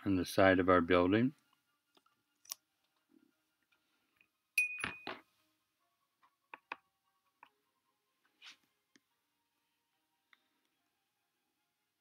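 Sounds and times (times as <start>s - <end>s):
sharp ringing clink: 4.6s - 5.2s.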